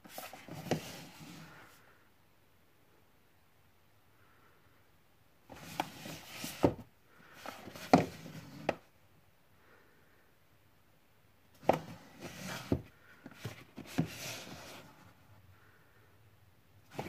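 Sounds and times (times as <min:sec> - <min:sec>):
cardboard boxes scraping on shelf: 0:00.1 - 0:01.6, 0:05.5 - 0:06.8, 0:07.4 - 0:08.8, 0:11.6 - 0:15.1.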